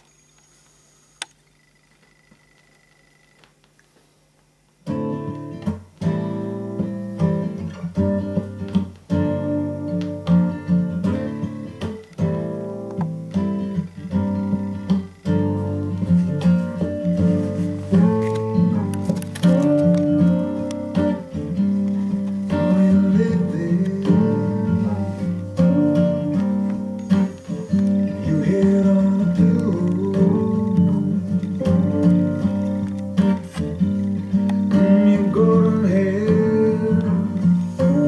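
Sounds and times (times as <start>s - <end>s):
low steady hum: 0.0s - 38.0s
guitar strumming: 4.8s - 38.0s
record click: 17.9s - 21.1s.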